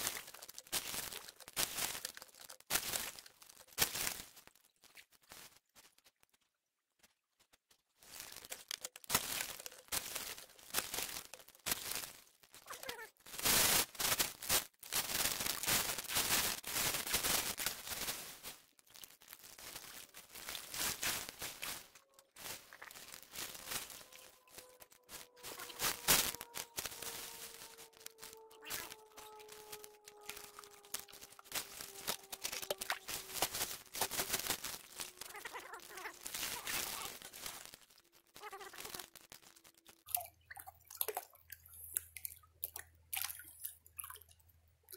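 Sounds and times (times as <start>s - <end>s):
creek water splashing: 18.8s - 44.3s.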